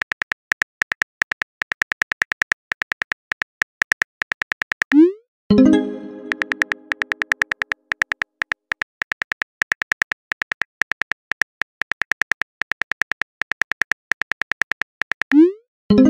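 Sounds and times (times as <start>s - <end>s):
phone keyboard typing clicks: 0.0s - 5.0s, 5.7s - 15.5s.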